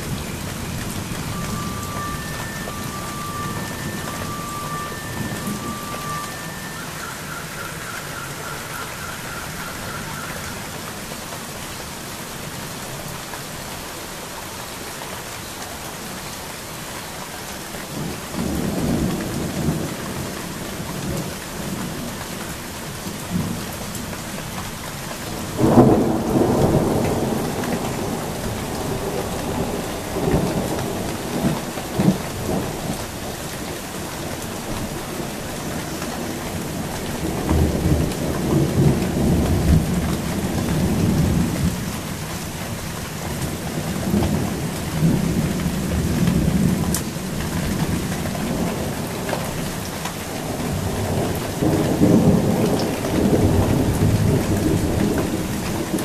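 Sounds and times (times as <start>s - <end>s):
rolling thunder: 0.0s - 9.6s, 25.4s - 33.0s
steady rain: 0.0s - 56.0s.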